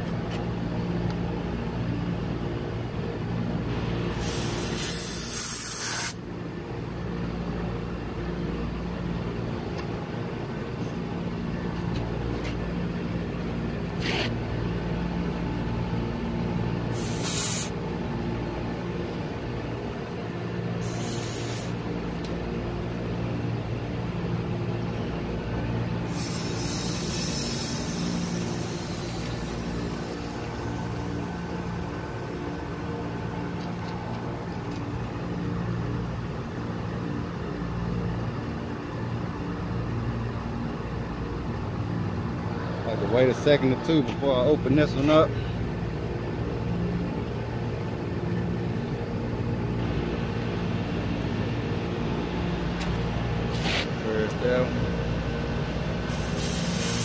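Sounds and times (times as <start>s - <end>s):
refrigeration machinery humming: 0.0s - 57.0s
refrigerant gas hissing: 3.9s - 6.2s, 16.9s - 17.8s, 20.8s - 21.8s, 26.0s - 30.6s, 56.0s - 57.0s.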